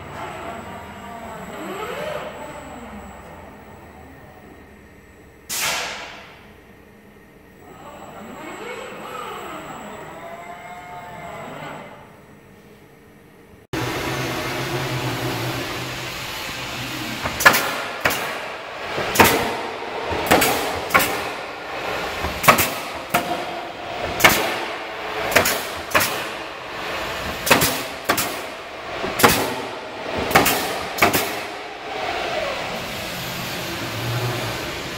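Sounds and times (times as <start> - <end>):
machine hum: 0.0 - 34.9
sharp mechanical knocks: 17.2 - 21.4, 22.1 - 26.3, 27.2 - 31.5.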